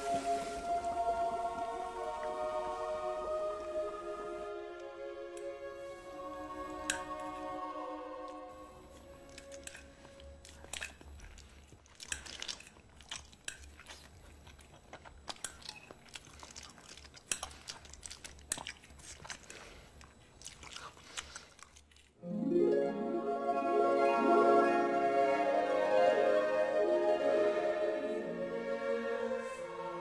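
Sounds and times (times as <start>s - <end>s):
man chewing and smacking: 9.0s - 22.2s.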